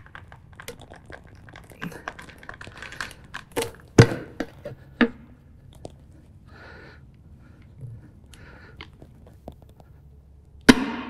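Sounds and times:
tire irons clicking on metal rim: 0.0s - 4.7s.

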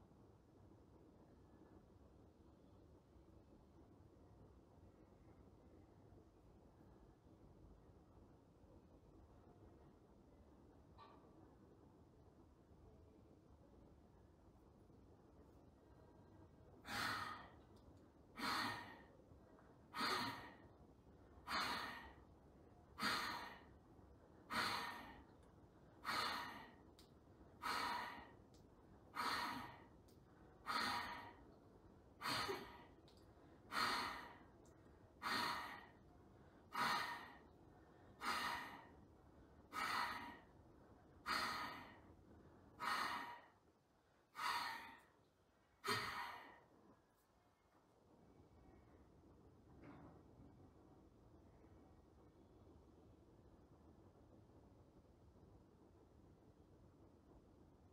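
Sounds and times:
man breathing forcefully: 23.0s - 23.7s, 26.0s - 26.8s, 27.6s - 28.4s, 30.6s - 31.4s, 33.7s - 34.5s, 35.2s - 36.0s, 36.7s - 37.5s, 38.1s - 39.0s, 39.7s - 40.5s.

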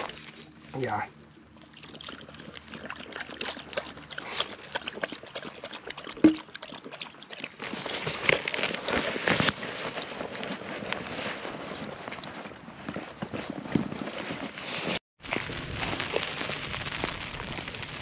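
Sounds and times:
water pouring and trickling: 1.4s - 8.5s.

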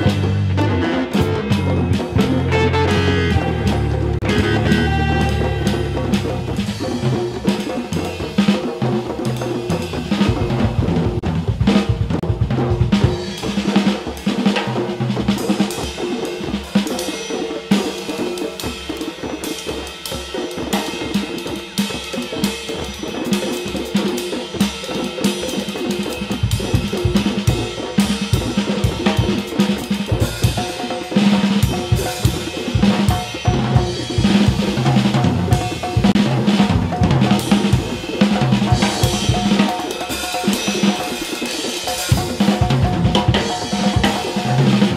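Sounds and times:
walking bass line: 0.0s - 6.8s
band music: 0.0s - 19.6s, 25.4s - 44.9s
drum kit groove: 0.0s - 44.9s.

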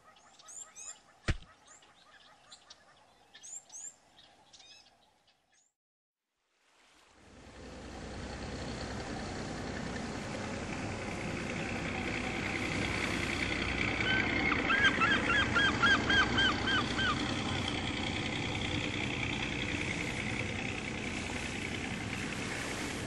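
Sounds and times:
bird calling: 0.0s - 4.9s, 11.6s - 20.7s
boat engine drone: 7.2s - 23.0s.

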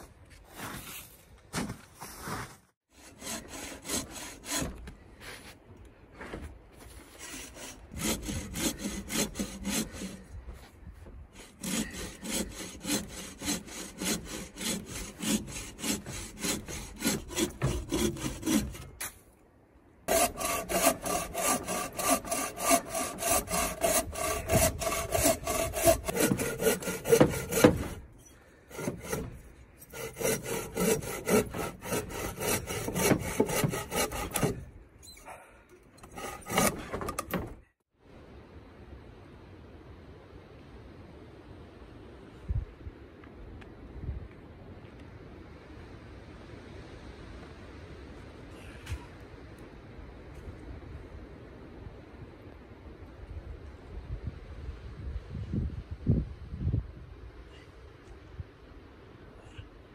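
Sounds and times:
bow saw cutting log: 2.9s - 4.9s, 7.2s - 10.3s, 11.4s - 19.2s, 20.1s - 34.7s, 36.0s - 37.6s.

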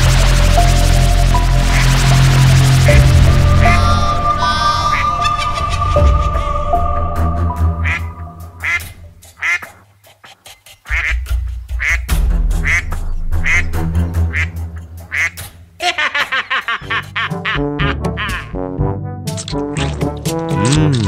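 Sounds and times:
background music with bass: 0.0s - 9.2s, 10.9s - 15.8s, 16.8s - 21.0s
duck quacking: 7.8s - 15.4s.

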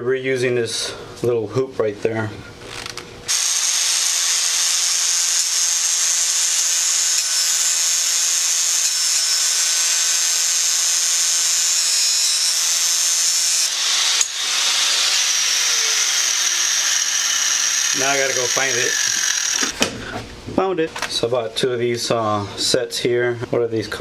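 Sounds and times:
angle grinder whine: 2.6s - 19.8s.

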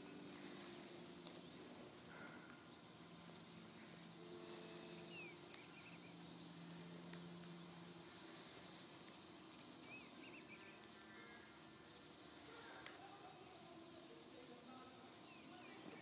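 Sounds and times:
low steady hum: 0.0s - 16.0s
faint clicks: 5.5s - 5.8s, 7.0s - 7.6s, 12.6s - 13.0s.

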